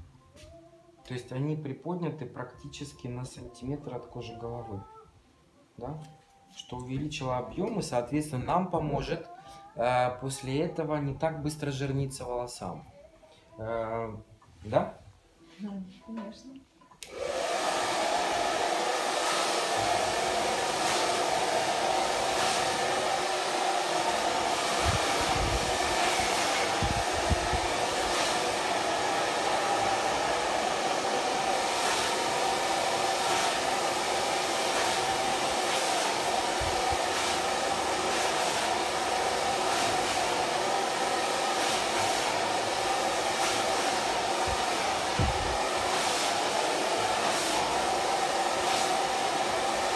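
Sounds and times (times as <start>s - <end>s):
hair dryer blowing: 17.0s - 49.9s.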